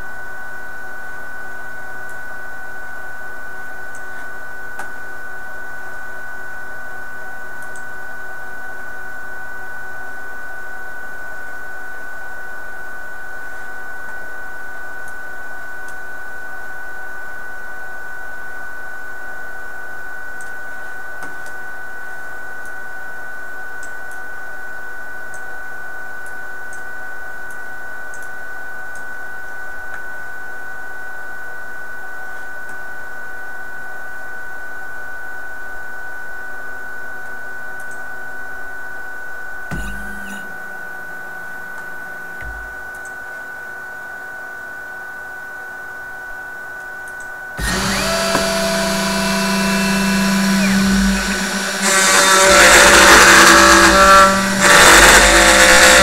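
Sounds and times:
spindle motor high whine: 39.7 - 42.8, 47.6 - 56.0.

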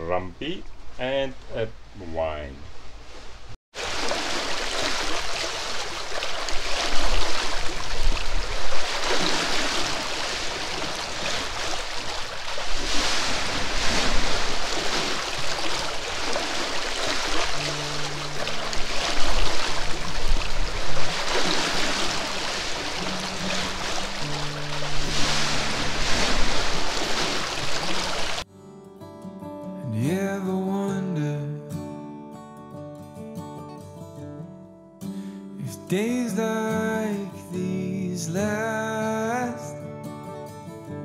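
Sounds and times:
water splashing along hulls: 3.2 - 28.4.

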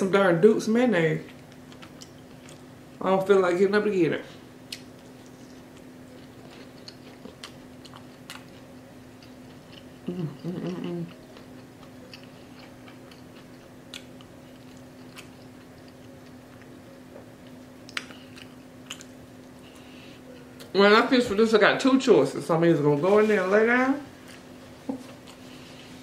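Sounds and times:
low electrical hum: 0.0 - 26.0
chewing crispy food: 1.2 - 3.0, 4.6 - 20.7
closed-mouth vocal sound: 10.0 - 11.2.

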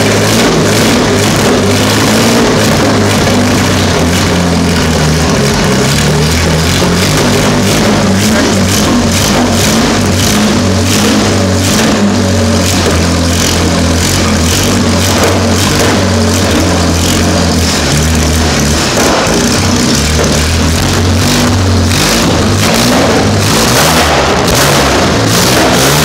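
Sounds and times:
car engine running unevenly: 0.0 - 26.0.

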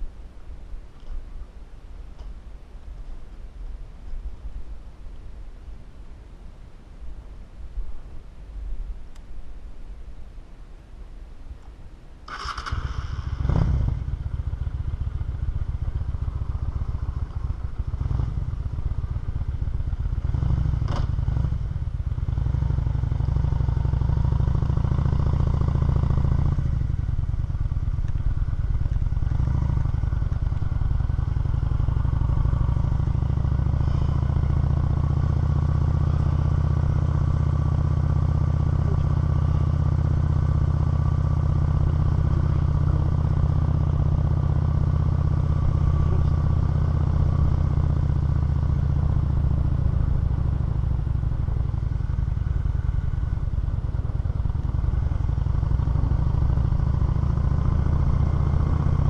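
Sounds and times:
motorcycle engine starting and running: 12.3 - 59.0.

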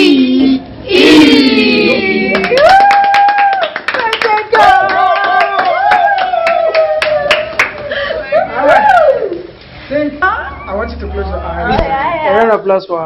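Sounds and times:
group singing long held notes: 0.0 - 2.3
people clapping: 2.0 - 9.1.

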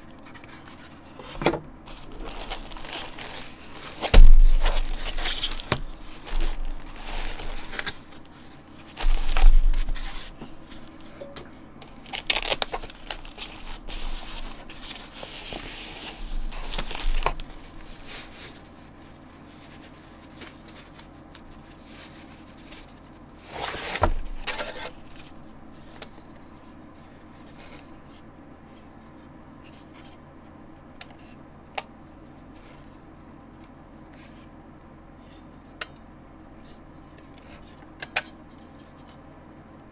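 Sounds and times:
packing sheet rustling: 1.8 - 11.0, 11.8 - 25.4.

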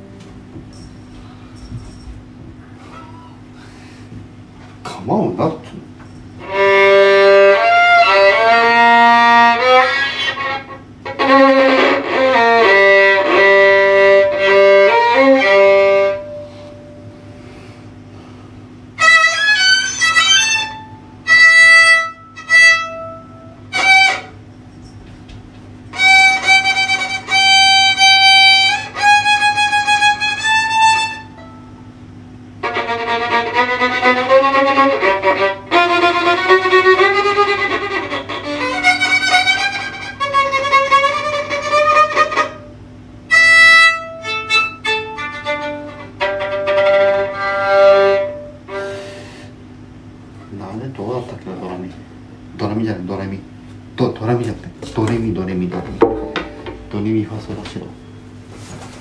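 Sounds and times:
solo violin playing: 6.4 - 16.6, 19.0 - 24.4, 25.9 - 31.7, 32.6 - 49.3.

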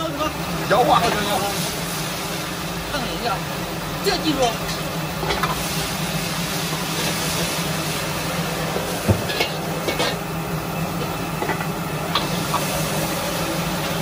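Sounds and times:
food sizzling in a wok: 0.0 - 14.0
gas burner noise: 0.0 - 14.0
metal ladle scraping a wok: 8.7 - 10.2.

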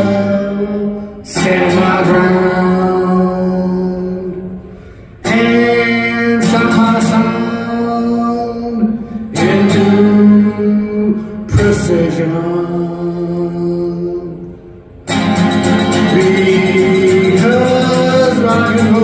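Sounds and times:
guitar chords ringing: 14.8 - 19.0.

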